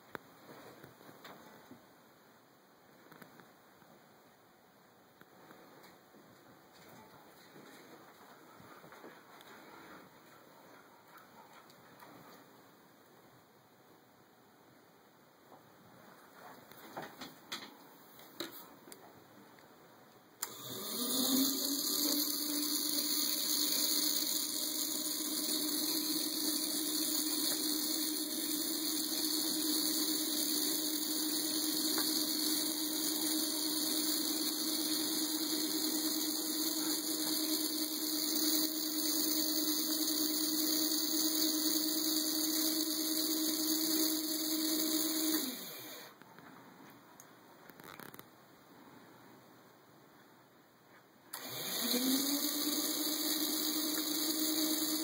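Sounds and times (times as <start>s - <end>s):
conveyor motor whining and humming: 20.4s - 46.1s, 51.4s - 55.0s.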